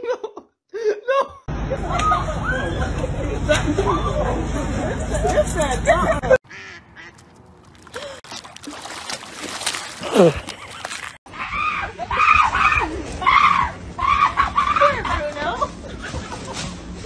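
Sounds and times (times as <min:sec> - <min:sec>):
people screaming: 0:01.8 - 0:03.0, 0:11.3 - 0:15.1.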